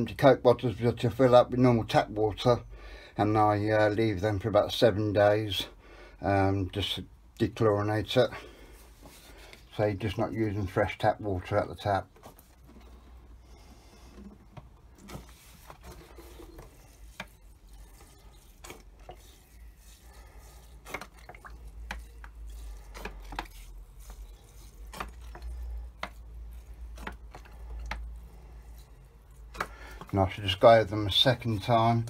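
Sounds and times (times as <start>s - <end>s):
water trickling onto compost: 15.0s - 32.0s.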